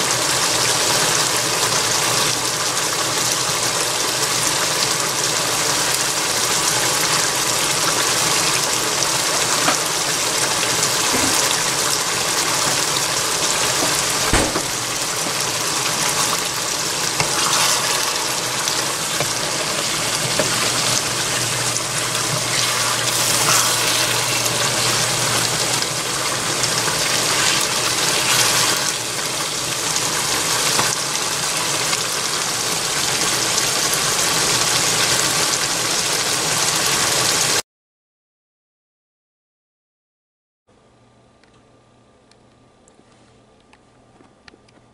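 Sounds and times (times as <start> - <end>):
stew bubbling and sizzling: 0.0 - 37.6
knock on pan: 11.1 - 11.6, 13.8 - 15.4, 20.2 - 20.6
spoon stirring pan: 16.1 - 24.8.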